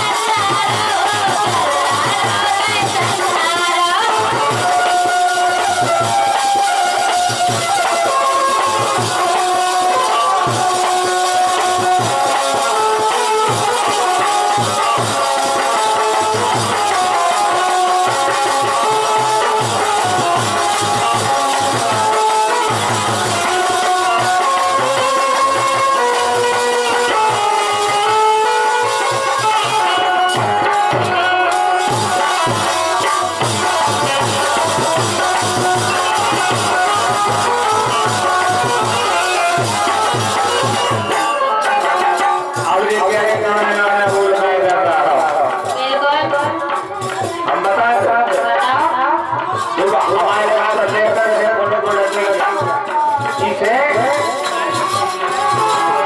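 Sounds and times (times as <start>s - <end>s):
harmonium sustained notes: 0.0s - 44.8s
repeating drum beat: 0.0s - 56.0s.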